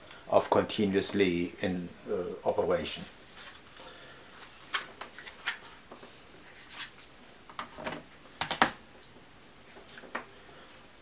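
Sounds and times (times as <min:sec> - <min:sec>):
plastic power banks clicking and knocking: 0:07.6 - 0:08.8.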